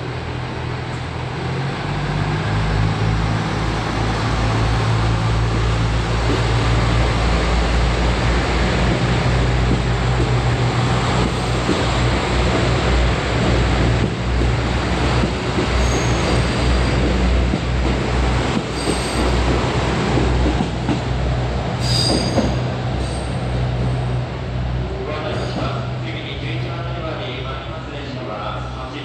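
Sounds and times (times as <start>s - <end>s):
diesel engines droning: 0.0s - 17.0s
train wheel and rail noise: 0.0s - 29.0s
high squeal: 15.8s - 16.7s, 21.8s - 23.4s.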